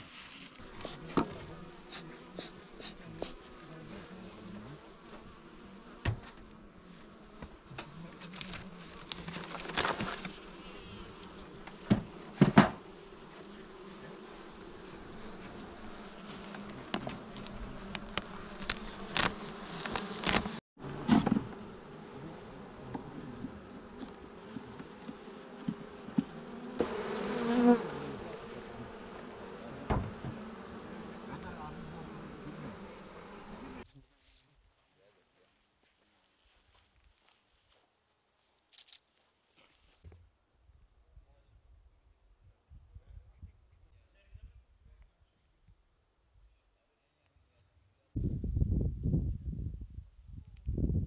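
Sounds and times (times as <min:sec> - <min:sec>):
bees buzzing: 0:00.5 - 0:33.8
sharp knocks on hive: 0:06.0 - 0:06.4, 0:11.8 - 0:12.8, 0:29.9 - 0:30.5.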